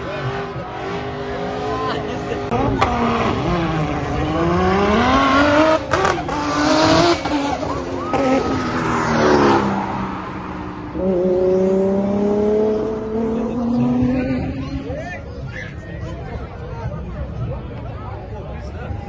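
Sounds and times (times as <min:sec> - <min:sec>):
engine accelerating: 0:00.0 - 0:15.1
race car engines revving: 0:00.0 - 0:19.0.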